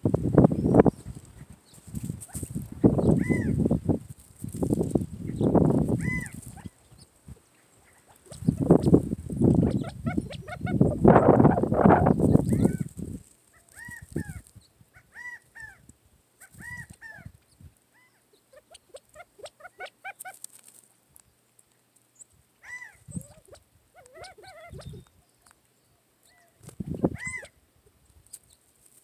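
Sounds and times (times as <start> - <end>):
quail calling: 2.2 - 3.8, 5.4 - 7.1, 7.8 - 12.9, 13.5 - 15.8, 16.4 - 17.4, 18.0 - 20.4, 22.6 - 25.1, 26.2 - 27.6.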